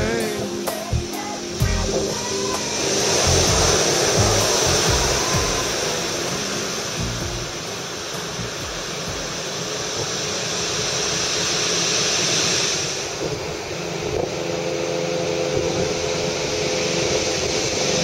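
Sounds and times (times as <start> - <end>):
steady motor hum: 0.0 - 18.0
wind noise on microphone: 0.9 - 7.6.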